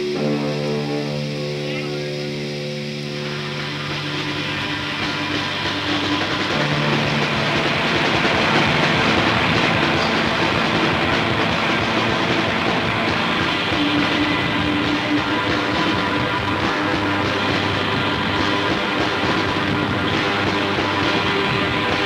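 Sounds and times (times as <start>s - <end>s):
rock music on lo-fi radio: 0.0s - 22.0s.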